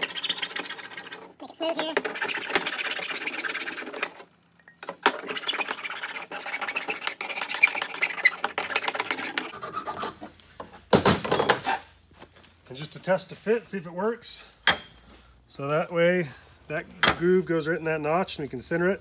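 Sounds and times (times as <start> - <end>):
file rasping on metal: 0.0 - 1.4, 5.2 - 10.3.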